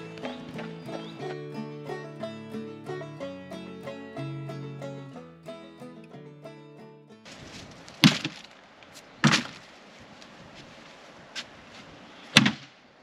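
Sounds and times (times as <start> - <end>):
banjo music: 0.0 - 7.6
shoes thudding into plastic bin: 8.0 - 8.5, 9.2 - 9.6.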